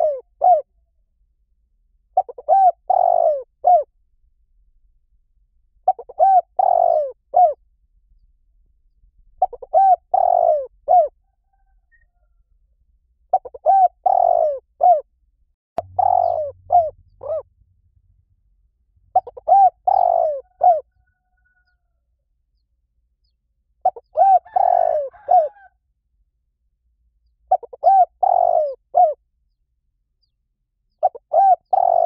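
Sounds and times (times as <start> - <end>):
dove cooing: 0.0 - 0.7, 2.2 - 3.9, 5.9 - 7.6, 9.4 - 12.1, 13.3 - 15.1, 15.8 - 17.5, 19.1 - 21.7, 23.8 - 25.7, 27.5 - 29.2, 31.0 - 32.0.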